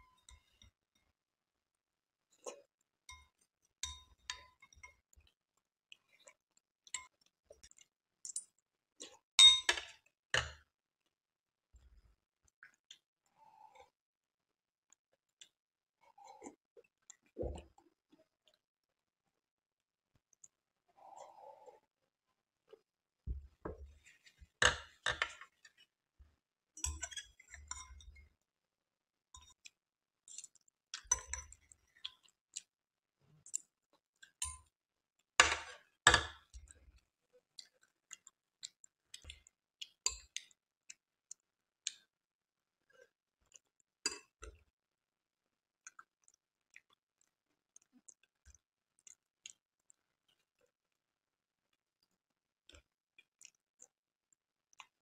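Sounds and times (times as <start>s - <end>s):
spoon clinking against glass bowl: 9.4s - 9.9s.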